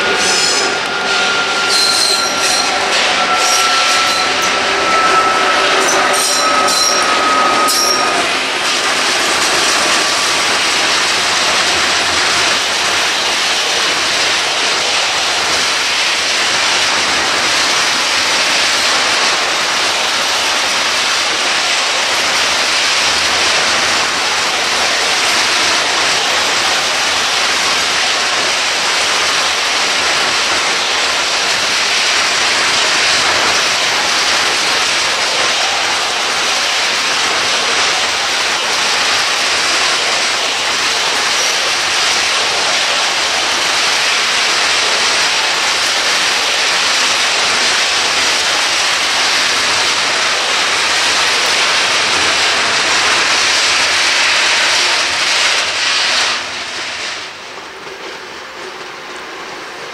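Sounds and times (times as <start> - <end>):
train wheels squealing: 0.0 - 10.8
train rolling noise: 0.0 - 59.9.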